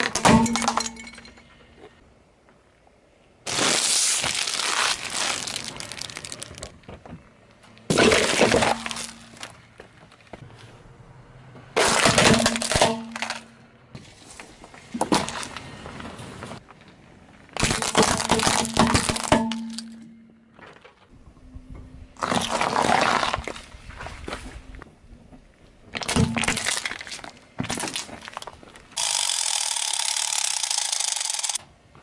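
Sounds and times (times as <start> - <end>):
tyre crushing plastic objects: 7.9 - 9.6, 11.8 - 13.5, 17.5 - 21.0, 22.2 - 23.6, 25.9 - 28.9.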